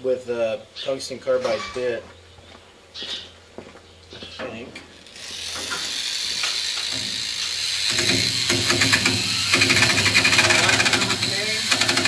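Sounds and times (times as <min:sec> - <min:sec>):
rotary tool grinding metal: 0:04.9 - 0:12.0.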